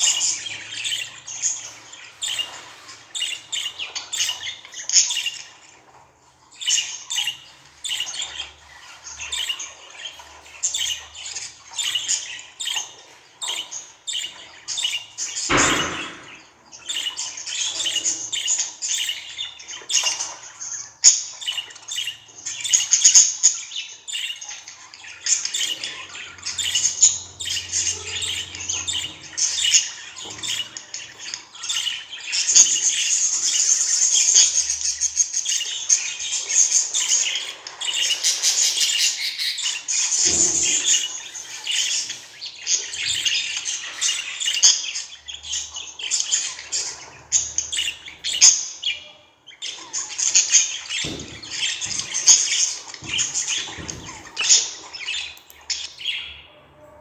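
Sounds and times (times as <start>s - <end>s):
budgerigars chirping and squawking: 0.0s - 57.0s.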